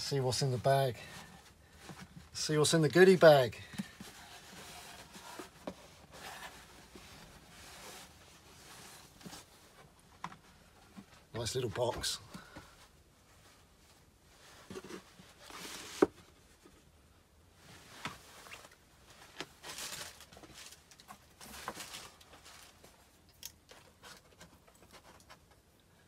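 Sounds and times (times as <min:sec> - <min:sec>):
packaging rustling and crinkling: 0:18.1 - 0:25.0.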